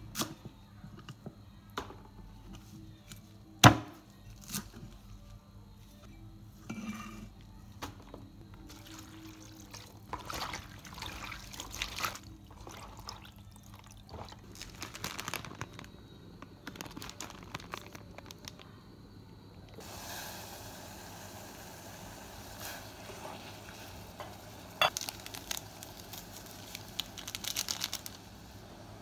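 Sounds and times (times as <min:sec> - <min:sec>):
water splashing and dripping: 0:08.8 - 0:14.4
pot of water boiling hiss: 0:16.6 - 0:29.0.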